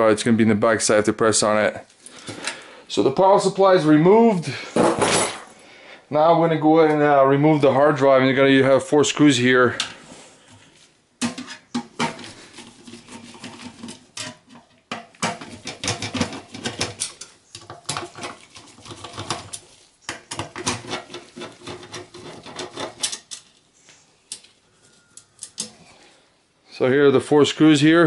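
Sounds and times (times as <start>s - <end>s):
small metal clicks and rattles: 13.8s - 23.6s, 25.2s - 25.8s.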